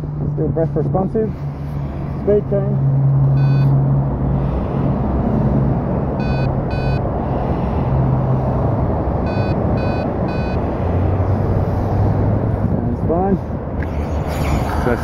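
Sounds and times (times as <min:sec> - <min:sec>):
short button beeps: 0:03.4 - 0:03.7.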